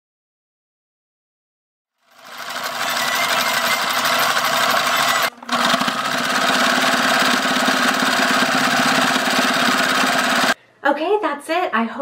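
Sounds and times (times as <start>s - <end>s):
sewing machine stitching: 2.0s - 10.6s.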